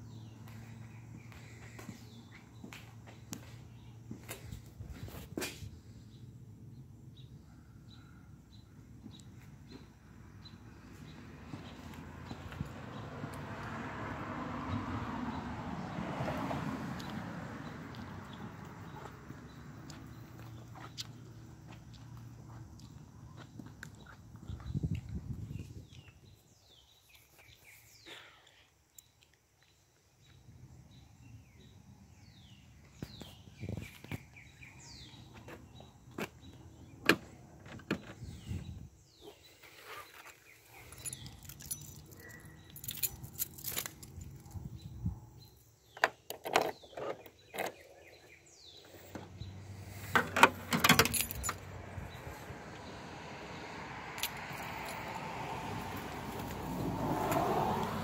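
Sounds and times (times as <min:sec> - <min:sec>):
birds chirping: 0:00.0 - 0:13.3, 0:16.9 - 0:58.0
keys jangling: 0:40.7 - 0:44.7, 0:50.7 - 0:51.7, 0:54.2 - 0:55.2.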